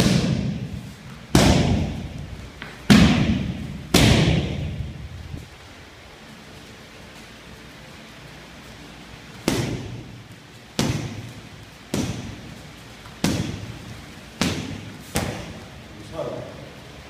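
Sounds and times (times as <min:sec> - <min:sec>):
strikes smacking on pads: 0:00.0 - 0:00.7, 0:01.3 - 0:04.8, 0:09.4 - 0:10.1, 0:10.8 - 0:12.4, 0:13.2 - 0:13.8, 0:14.4 - 0:15.6.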